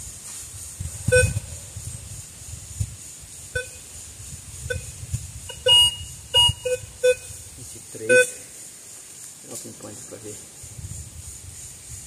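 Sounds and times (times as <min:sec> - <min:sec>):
metal detector beeps: 0:01.1 - 0:01.4, 0:03.6 - 0:03.8, 0:05.5 - 0:07.3, 0:08.1 - 0:08.4.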